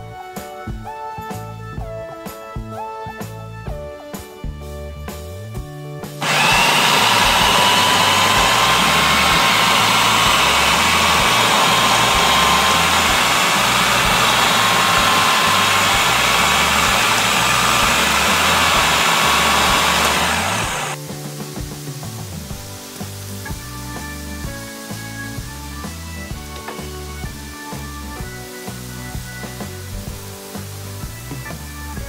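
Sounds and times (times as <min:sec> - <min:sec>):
food processor whining: 0:06.2 - 0:21.0.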